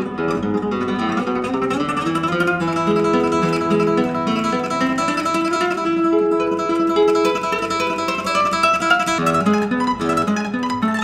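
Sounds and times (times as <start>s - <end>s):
acoustic guitar melody: 0.0s - 11.0s.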